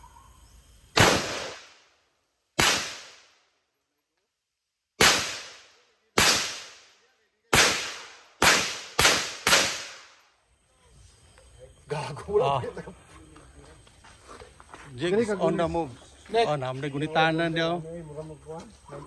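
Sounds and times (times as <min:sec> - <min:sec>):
rifle shots: 0:01.0 - 0:01.8, 0:02.6 - 0:03.3, 0:05.0 - 0:06.9, 0:07.5 - 0:10.2.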